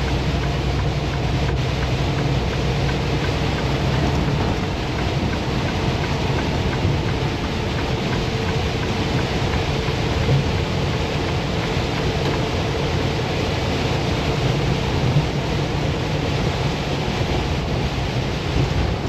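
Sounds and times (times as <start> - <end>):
truck engine drone: 0.0 - 19.0
tyre road and rain hiss: 0.0 - 19.0.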